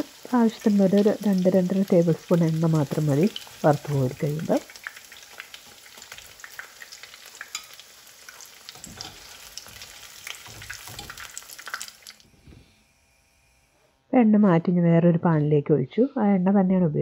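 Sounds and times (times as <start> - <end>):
hot oil sizzling in a pan: 0.0 - 13.7
spoon stirring and scraping: 8.7 - 11.8.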